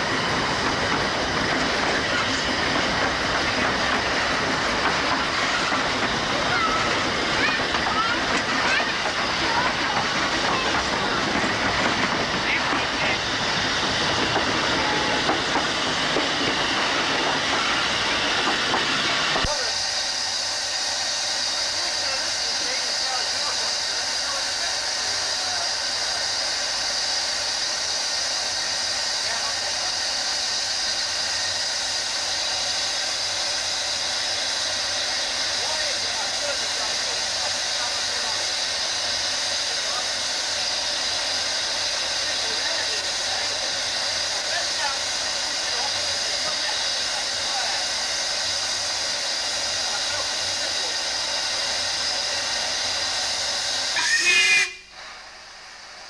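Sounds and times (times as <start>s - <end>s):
steam locomotive hissing steam: 0.0s - 56.0s
steam whistle shriek: 53.8s - 55.0s.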